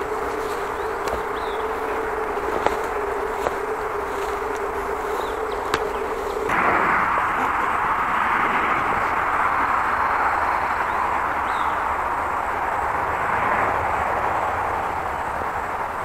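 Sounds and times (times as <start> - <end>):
highway traffic rushing: 0.0 - 16.0.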